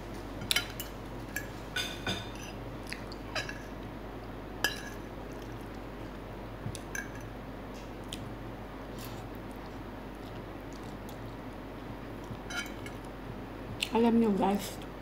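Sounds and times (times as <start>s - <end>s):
fork clinking on ceramic plate: 12.5s - 13.0s.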